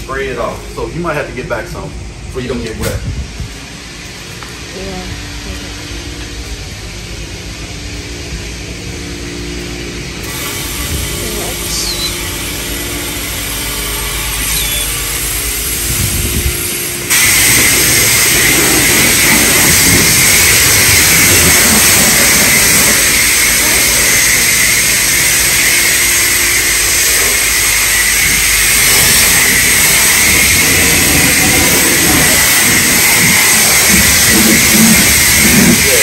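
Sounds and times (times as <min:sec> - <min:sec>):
pressure washer spraying water: 0:10.2 - 0:36.0.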